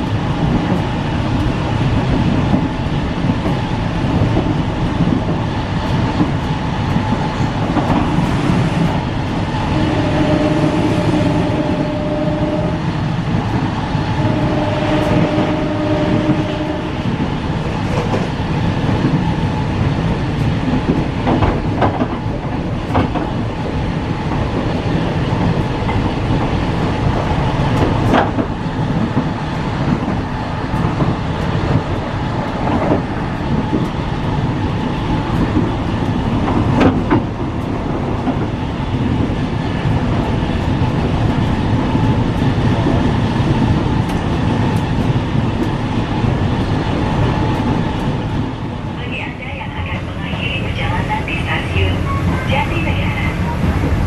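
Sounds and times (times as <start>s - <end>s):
train wheels rumbling on rail: 0.0s - 54.0s
long steady tone: 9.6s - 13.0s, 14.2s - 17.1s.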